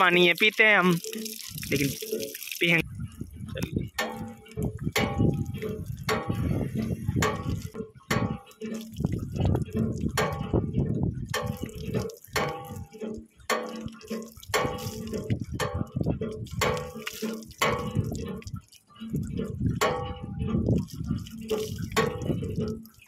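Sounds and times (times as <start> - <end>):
hands splashing water: 0.0 - 2.8, 11.4 - 18.5, 20.8 - 23.0
water pouring from a tap: 0.0 - 23.0.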